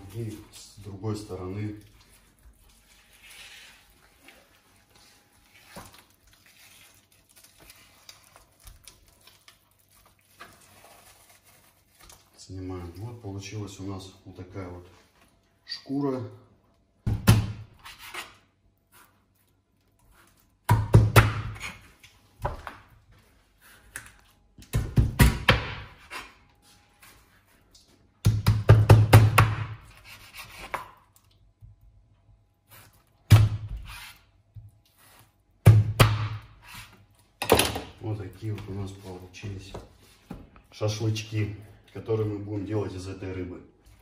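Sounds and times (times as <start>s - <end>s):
wet rustling of fish skin: 1.6s - 13.2s.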